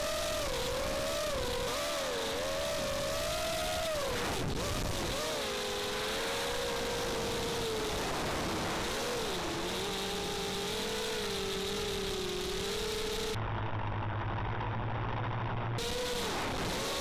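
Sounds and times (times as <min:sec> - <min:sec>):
quadcopter motors whining: 0:00.0 - 0:13.4, 0:15.8 - 0:17.0
dull low hum: 0:02.5 - 0:16.6.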